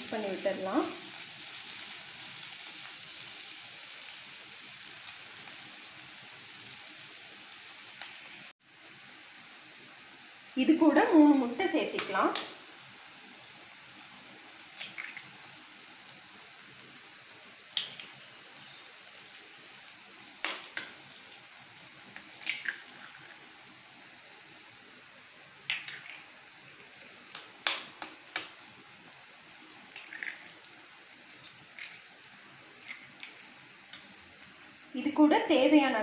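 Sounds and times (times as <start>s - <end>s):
pan sizzling: 0.0s - 36.0s
eggshells cracking: 22.1s - 23.4s, 25.7s - 26.3s, 29.9s - 30.6s.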